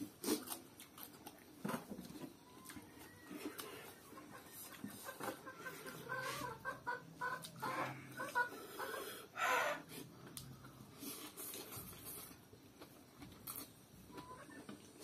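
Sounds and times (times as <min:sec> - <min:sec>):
person eating with hissing breaths: 0:00.0 - 0:01.0, 0:07.4 - 0:12.9.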